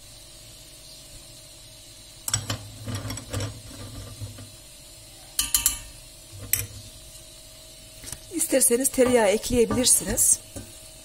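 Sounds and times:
metal spoon clinking on pot: 5.4s - 6.7s.

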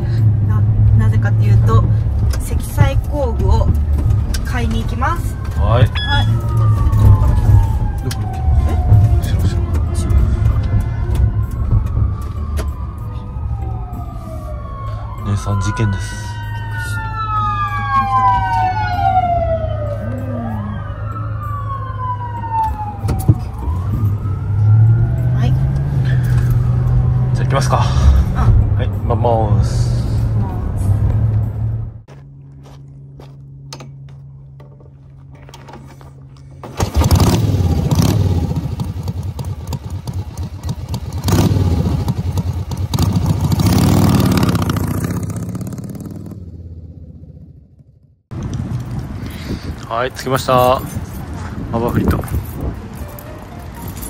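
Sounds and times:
siren wailing: 2.6s - 27.4s
motorcycle engine revving: 36.6s - 49.1s.

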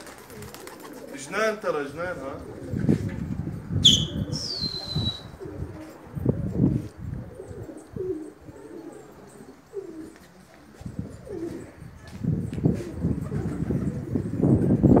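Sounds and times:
pigeons cooing: 0.0s - 14.6s
high falling whistle: 3.8s - 5.4s.

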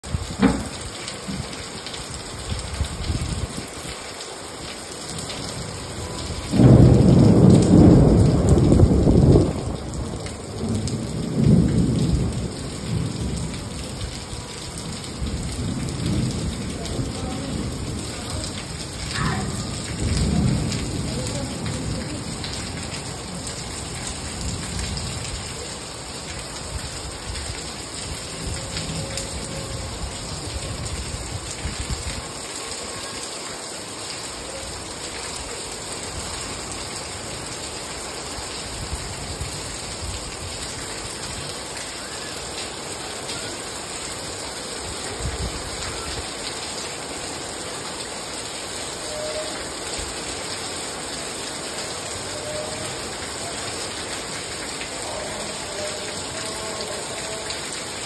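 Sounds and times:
steady rain falling: 0.0s - 58.0s
thunder rumbling: 5.9s - 25.4s.

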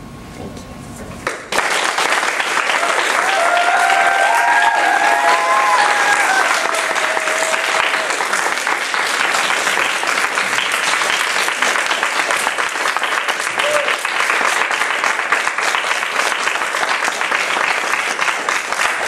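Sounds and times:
crowd applauding: 1.2s - 19.0s
long cheering call: 2.6s - 8.6s, 13.4s - 14.1s.

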